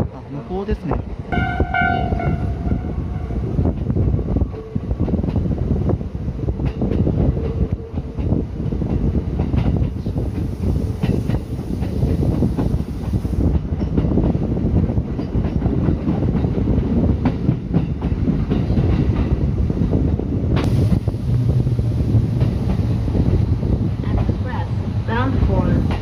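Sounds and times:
train wheels clattering over rail joints: 6.6 - 24.4.

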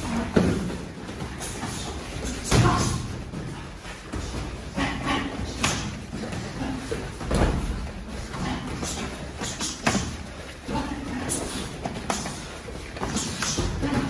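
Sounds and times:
thuds and slaps on foam mats: 7.2 - 8.7.

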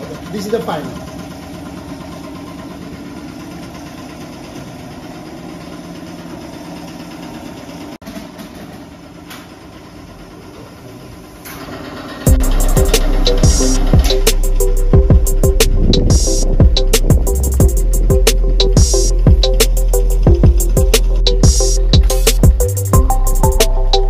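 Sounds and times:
sorting machinery drone: 9.9 - 24.0.

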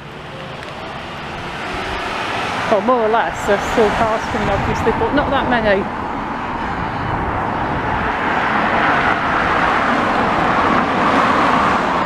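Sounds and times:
cars passing on street: 0.0 - 12.0.

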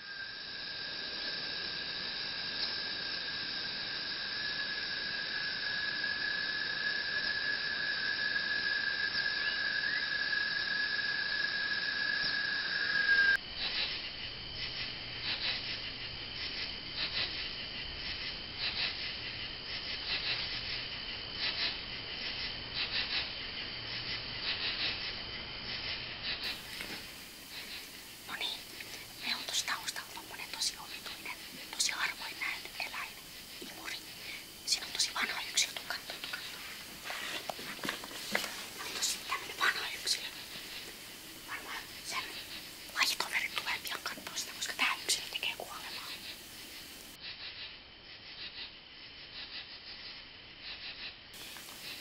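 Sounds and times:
insects chirring: 0.0 - 52.0
faint low hum: 13.0 - 47.2.

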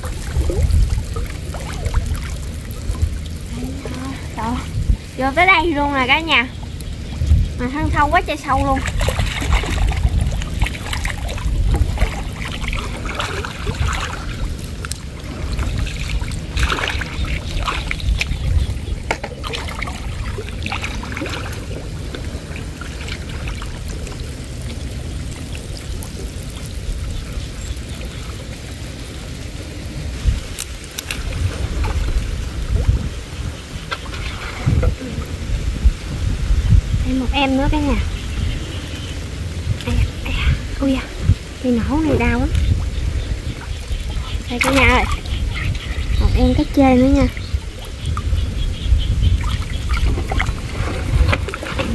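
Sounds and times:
steady low rumble: 0.0 - 51.9
water sloshing and trickling: 0.0 - 51.9
short splashes: 7.6 - 18.4, 19.1 - 24.2.

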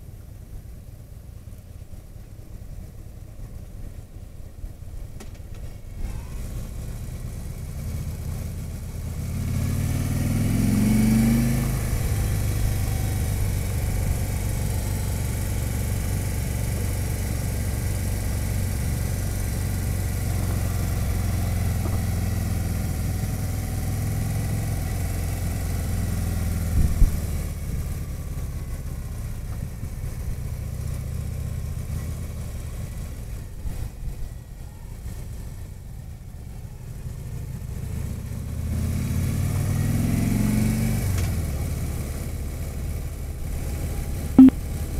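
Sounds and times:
motorcycle engine accelerating: 6.0 - 33.2.

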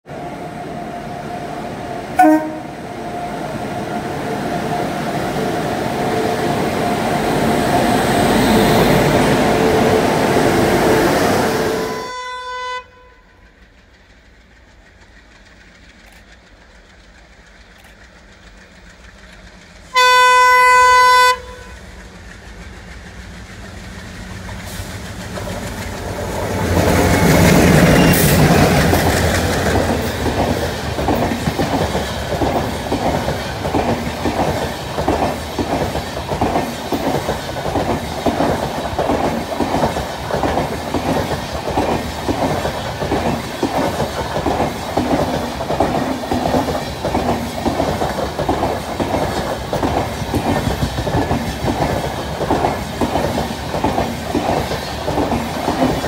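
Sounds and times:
rumble of passing train: 0.0 - 56.0
train running into station: 0.0 - 56.0
train horn: 2.2 - 3.0, 8.6 - 13.4, 19.9 - 21.8.

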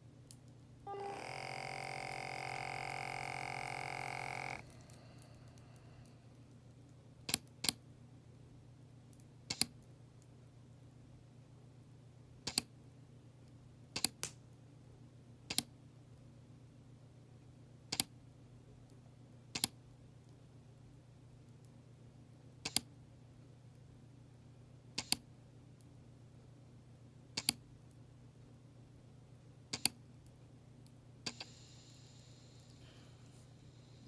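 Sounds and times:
low steady hum: 0.0 - 13.8.

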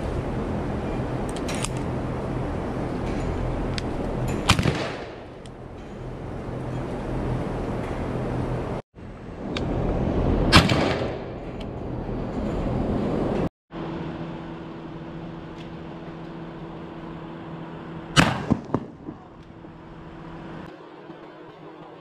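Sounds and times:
steady low hum: 0.0 - 22.0
gunshot: 4.5 - 5.2, 10.5 - 11.3, 18.2 - 19.2.

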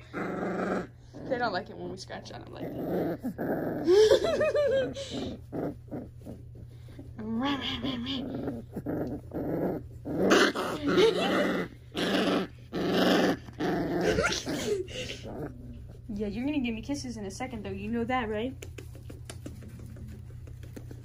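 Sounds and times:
puppy growling: 0.0 - 16.3
puppy crying: 13.9 - 15.3.

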